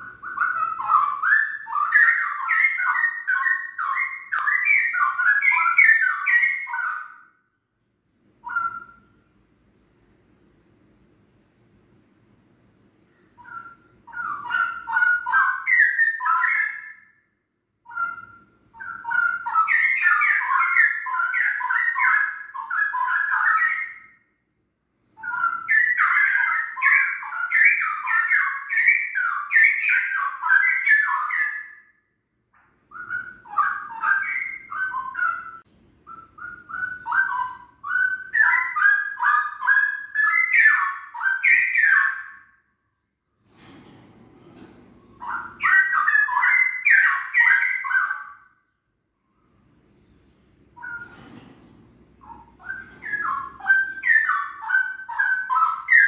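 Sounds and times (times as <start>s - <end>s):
songbird singing: 0.0s - 7.4s, 8.4s - 24.3s, 25.0s - 32.0s, 32.9s - 42.6s, 45.0s - 48.6s, 49.6s - 51.2s, 52.2s - 56.0s.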